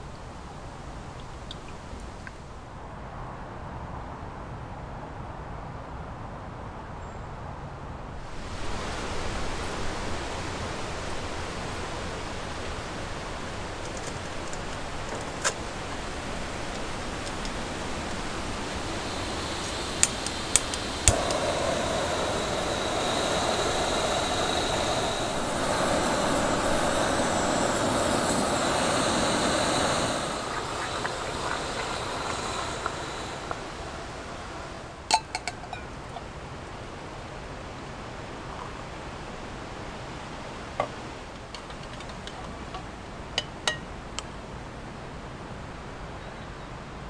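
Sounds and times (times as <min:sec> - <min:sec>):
gas burner rushing: 0:08.2 - 0:36.2
gas hissing: 0:08.2 - 0:36.2
stove igniter clicks: 0:19.6 - 0:24.8.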